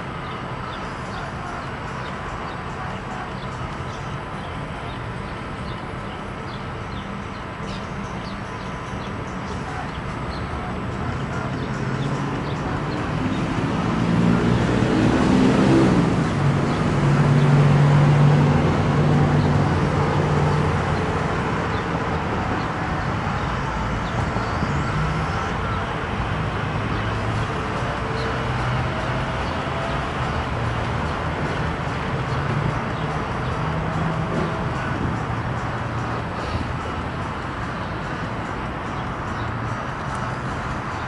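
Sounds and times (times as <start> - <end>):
steady traffic noise: 0.0 - 41.0
vehicle driving past: 12.0 - 35.0.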